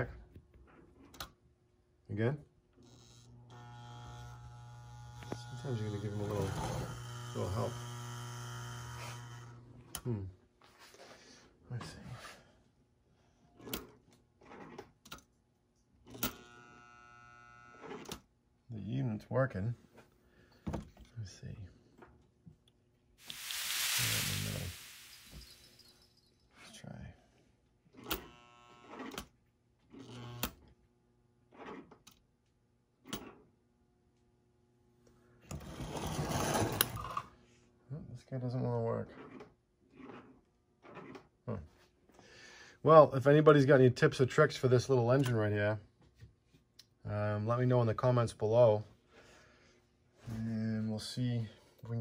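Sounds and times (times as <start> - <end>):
steady electrical buzz: 2.9 - 9.8
short electric buzz: 23.2 - 25.9.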